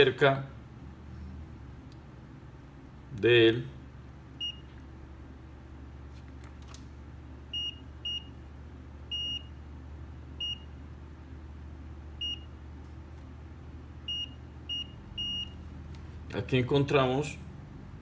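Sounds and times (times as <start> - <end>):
low steady hum: 0.0 - 18.0
multimeter short high beeps: 4.4 - 4.7, 7.5 - 8.3, 9.1 - 9.6, 12.2 - 12.5, 14.1 - 15.6.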